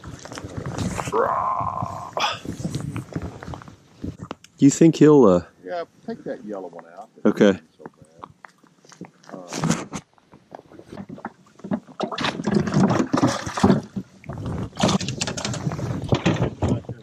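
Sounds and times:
handling clicks knocks and rustling: 0:14.8 - 0:17.0.

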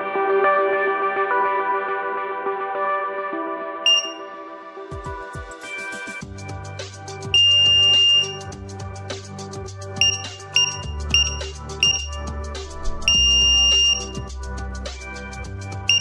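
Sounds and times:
background music: 0:00.0 - 0:16.0
long high keypad beep: 0:03.9 - 0:04.3, 0:07.4 - 0:08.5, 0:10.0 - 0:14.3
short keypad beeps: 0:03.9 - 0:04.3, 0:07.4 - 0:08.5, 0:10.0 - 0:14.3.

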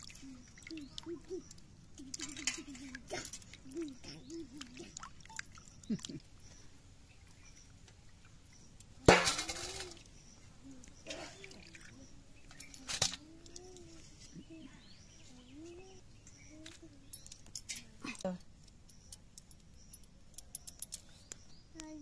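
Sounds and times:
water sloshing and dripping: 0:00.0 - 0:10.1, 0:10.8 - 0:14.0.

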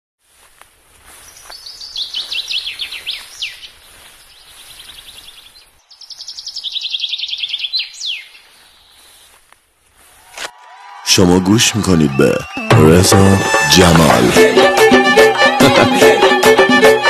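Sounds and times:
songbird chirping: 0:00.2 - 0:10.1.

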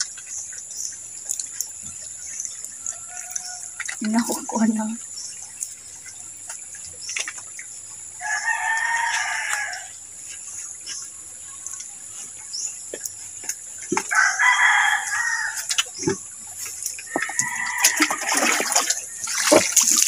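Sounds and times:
rooster crowing: 0:08.2 - 0:09.9, 0:14.1 - 0:15.7, 0:17.1 - 0:19.0.

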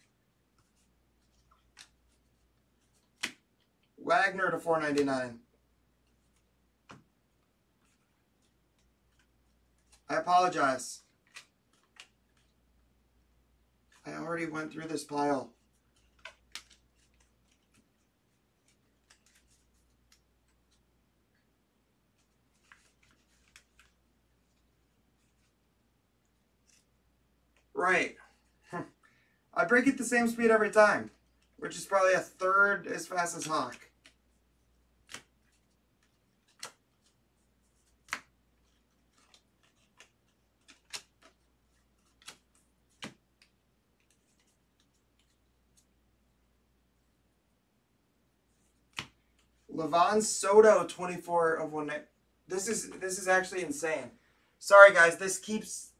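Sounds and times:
trading cards clicking and tapping: 0:15.9 - 0:17.9, 0:35.0 - 0:37.0, 0:37.8 - 0:41.4, 0:42.0 - 0:45.4, 0:48.9 - 0:49.5.

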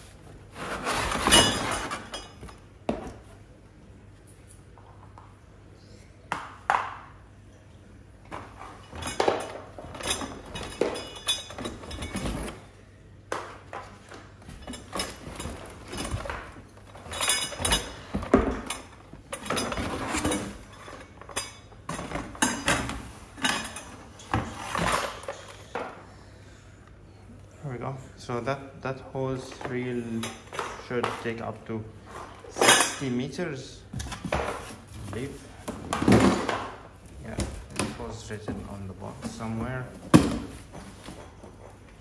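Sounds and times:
plastic parts knocking and clattering: 0:13.3 - 0:25.9, 0:34.0 - 0:41.2.

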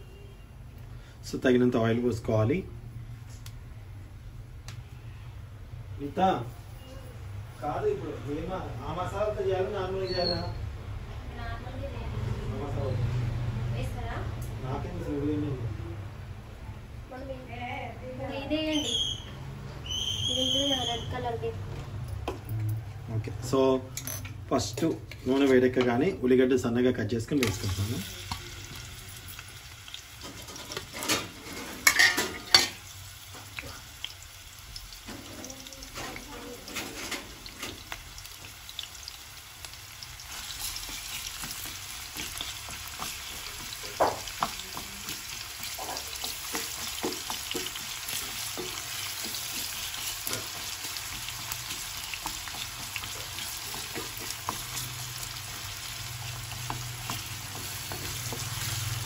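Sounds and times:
onions sizzling in oil: 0:19.8 - 0:21.4, 0:25.1 - 0:59.0
spatula scraping and tapping pan: 0:30.2 - 0:32.8, 0:40.4 - 0:59.0.

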